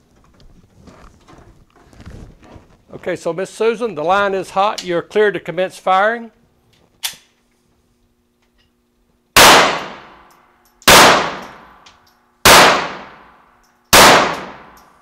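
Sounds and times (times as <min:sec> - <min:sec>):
echoing handgun shots: 0:09.4 - 0:10.2, 0:10.8 - 0:11.8, 0:12.4 - 0:14.8.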